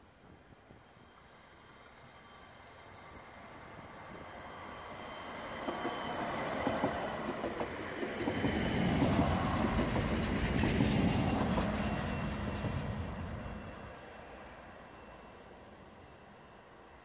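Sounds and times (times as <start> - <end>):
train wheels clicking: 5.5 - 14.4.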